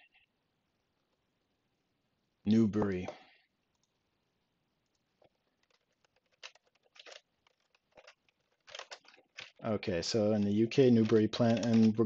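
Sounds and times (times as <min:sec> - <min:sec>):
computer keyboard keystrokes: 0:04.9 - 0:09.6, 0:10.3 - 0:12.0.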